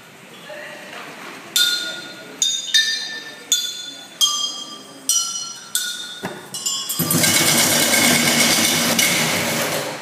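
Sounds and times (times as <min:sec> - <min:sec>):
glass bottles ringing when struck: 0:01.6 - 0:09.4.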